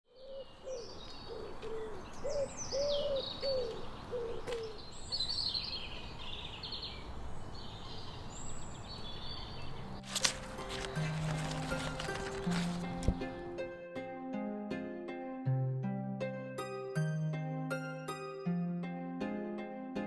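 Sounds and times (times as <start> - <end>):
low bird cooing: 0.1 - 5.0
birds chirping and twittering: 0.1 - 10.2
music: 10.0 - 20.0.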